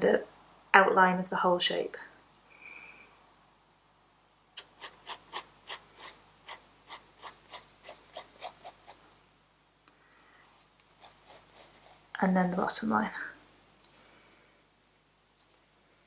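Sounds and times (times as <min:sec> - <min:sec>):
pencil sketching on paper: 0:04.8 - 0:09.0, 0:10.9 - 0:12.1.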